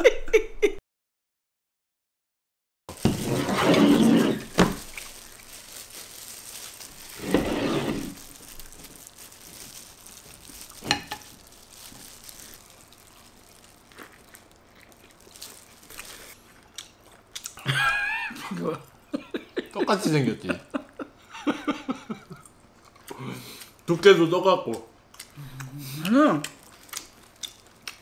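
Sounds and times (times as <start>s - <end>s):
battered food crackling: 2.9s - 17.6s, 26.4s - 28.0s.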